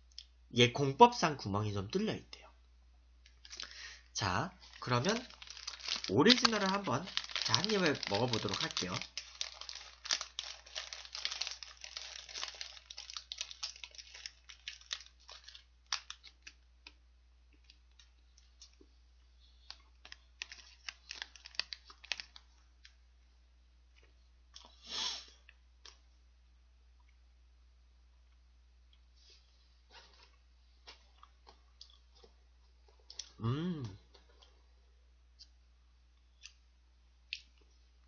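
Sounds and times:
plastic wrapper crinkling: 0:03.2 - 0:03.9, 0:04.6 - 0:17.0, 0:19.6 - 0:23.0
biting and chewing: 0:04.6 - 0:16.3.

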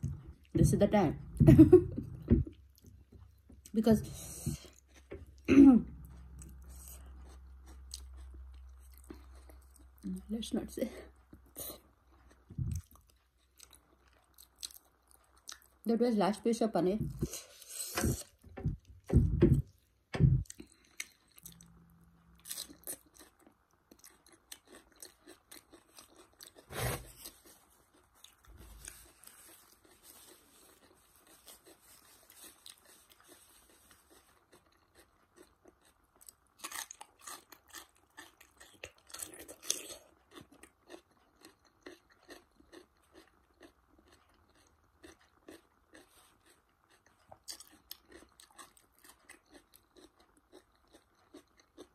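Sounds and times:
thumps: 0:00.0 - 0:02.6, 0:17.0 - 0:20.5
crunching and chewing cucumber: 0:04.6 - 0:10.2, 0:11.2 - 0:15.8, 0:20.4 - 0:51.9.

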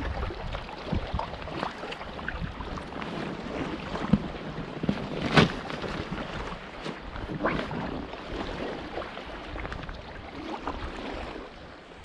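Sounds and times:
water lapping: 0:00.0 - 0:12.0
wind on microphone: 0:00.0 - 0:12.0.

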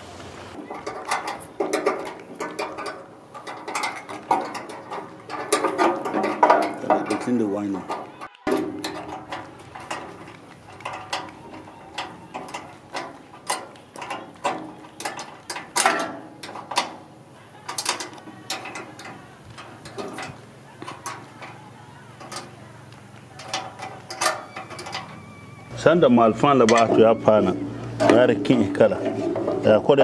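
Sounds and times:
spanner clicking on bolts: 0:00.8 - 0:21.6, 0:23.4 - 0:25.3.

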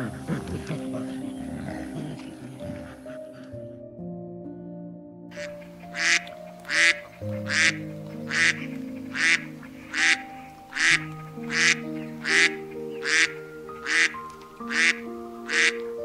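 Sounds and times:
soft held-note music: 0:00.0 - 0:16.0
duck quacking: 0:05.4 - 0:15.9.

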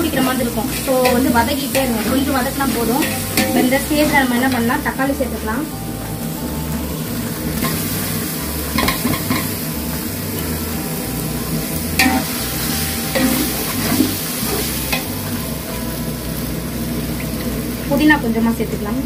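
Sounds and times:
ladle stirring and scraping pot: 0:00.0 - 0:04.3
masala sizzling in hot oil: 0:00.0 - 0:19.0.

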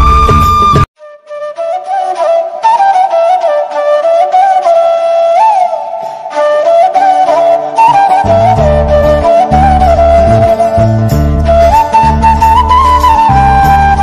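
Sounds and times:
flute melody: 0:00.0 - 0:14.0
low musical accompaniment: 0:06.6 - 0:14.0.

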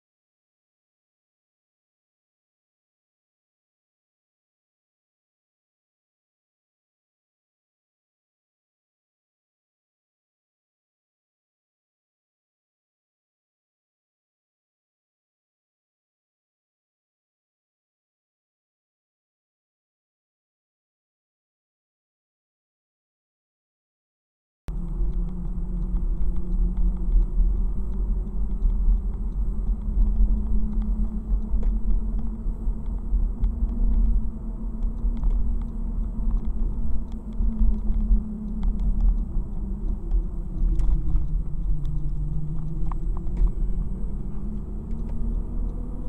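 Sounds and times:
car engine and road noise: 0:24.7 - 0:46.0.

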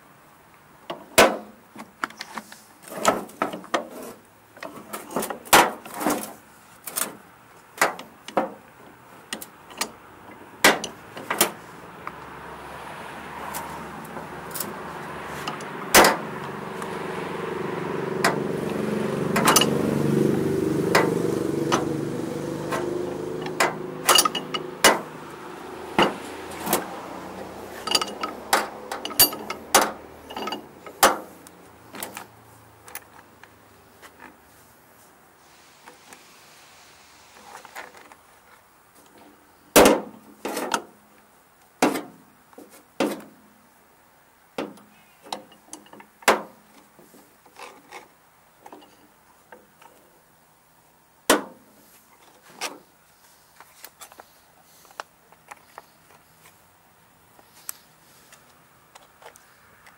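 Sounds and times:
passing vehicle engine hum: 0:08.9 - 0:35.3
metal tools clinking: 0:19.4 - 0:19.8, 0:23.4 - 0:25.0, 0:27.7 - 0:31.1.

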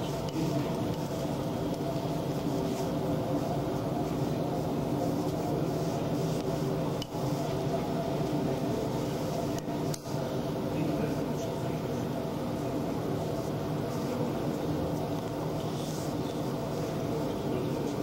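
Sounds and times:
steady low hum with tones: 0:00.0 - 0:18.0.

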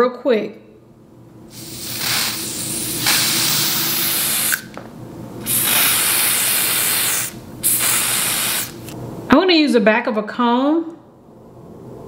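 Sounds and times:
aerosol spray hissing: 0:01.5 - 0:04.8, 0:05.4 - 0:09.0.

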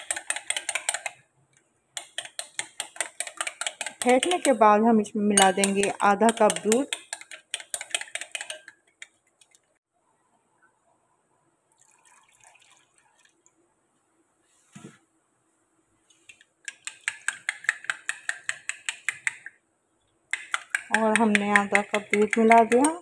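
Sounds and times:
spoon clinking against glass bowl: 0:05.4 - 0:08.8
milk pouring into bowl: 0:11.7 - 0:13.5.

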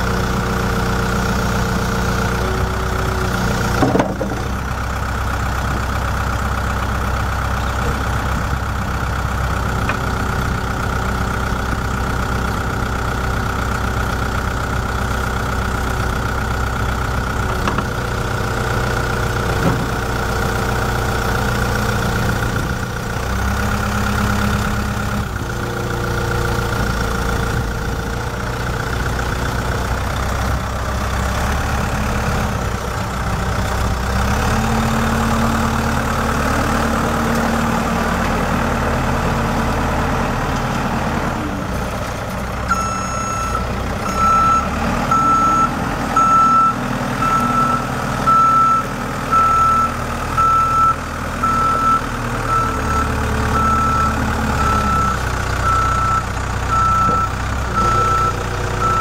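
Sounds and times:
diesel engine running under load: 0:00.0 - 0:59.0
reversing alarm beeping: 0:42.7 - 0:59.0.

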